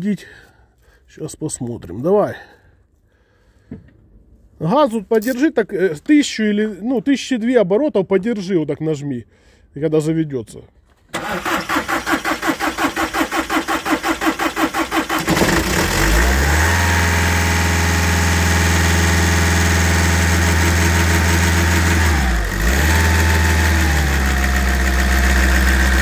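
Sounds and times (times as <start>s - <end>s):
diesel engine cranking and idling: 11.1s - 26.0s.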